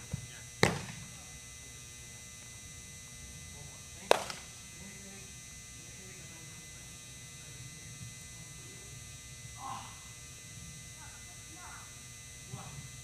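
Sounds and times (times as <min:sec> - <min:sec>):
electrical hum and buzz: 0:00.0 - 0:13.0
faint voices: 0:03.3 - 0:10.2, 0:10.9 - 0:13.0.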